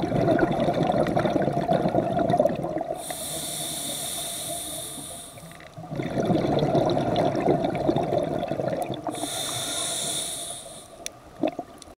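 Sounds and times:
bubbles from exhaled breath: 0.0 - 3.1, 5.8 - 9.4, 11.4 - 11.7
regulator hissing on inhale: 3.0 - 5.6, 9.1 - 11.0.

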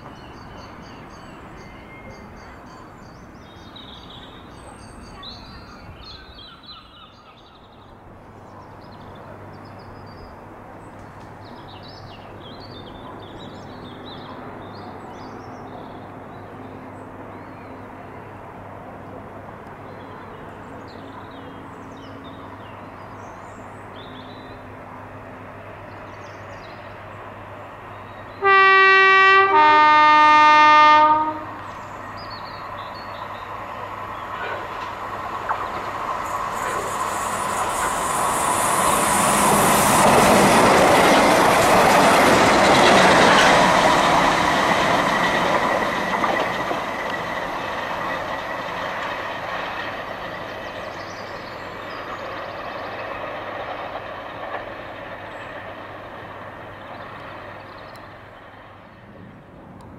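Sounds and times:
low rail hum: 0.0 - 59.9
birds chirping: 19.8 - 59.2
train two-tone horn: 28.4 - 31.8.

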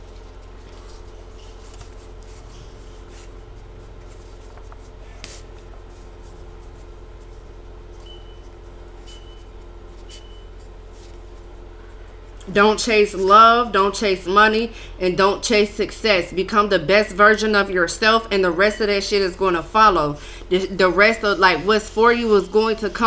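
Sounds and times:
paper cards shuffling: 0.0 - 7.4
steady low hum: 0.0 - 23.0.

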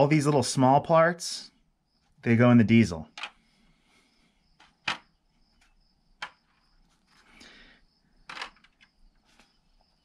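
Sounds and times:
handling rustle: 8.3 - 9.8.

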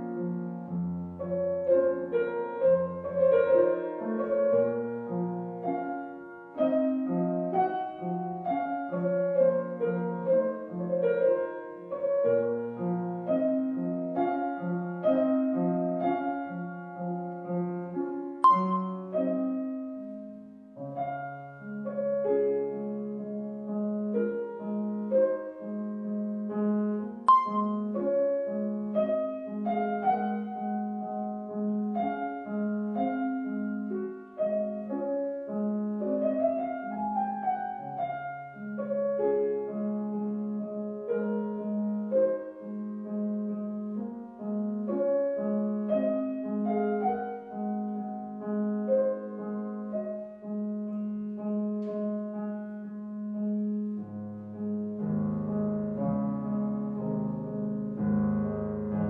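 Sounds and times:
gentle solo piano music: 0.0 - 59.0.

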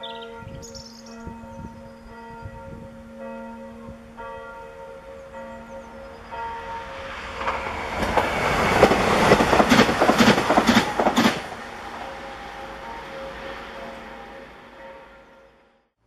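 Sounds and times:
train passing at speed: 6.0 - 15.9
wheels clacking on rails: 6.2 - 15.3.

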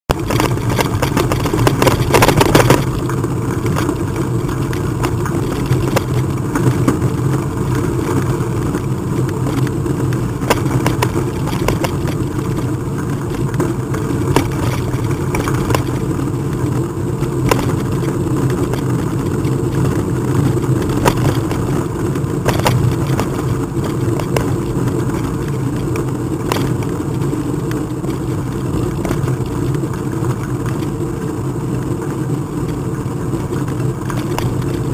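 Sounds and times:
short rattles and knocks: 0.1 - 16.7, 17.4 - 27.2
moving bike running noise: 0.1 - 34.9.

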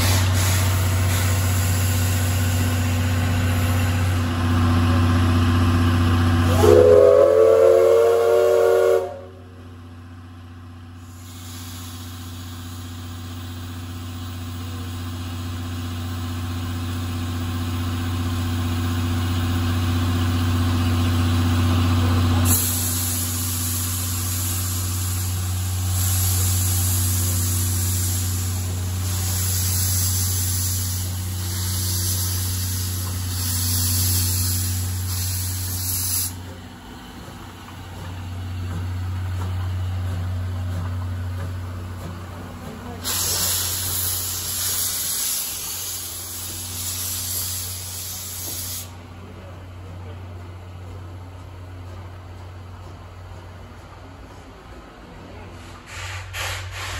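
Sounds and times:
steam locomotive whistle: 6.4 - 9.5
steam hissing from drain cocks: 22.5 - 36.4, 43.0 - 49.0.

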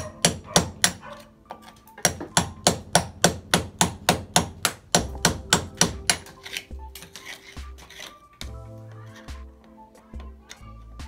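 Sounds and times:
hammer striking chisel on concrete: 0.0 - 8.1.

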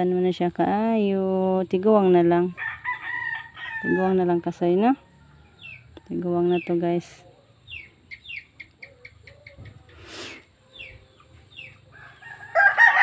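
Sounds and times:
rooster crowing: 2.6 - 4.2, 5.0 - 5.9, 11.9 - 13.0.

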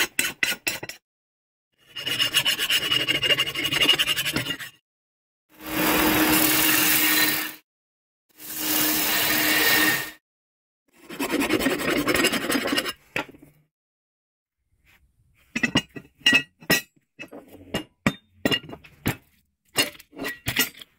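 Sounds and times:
steel blade grinding on belt sander: 5.6 - 7.6.

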